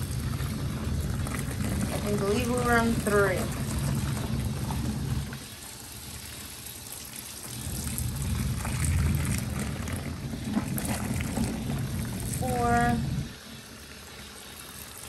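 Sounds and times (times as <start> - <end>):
washing machine motor hum: 0.0 - 15.0
water churning: 0.0 - 15.0.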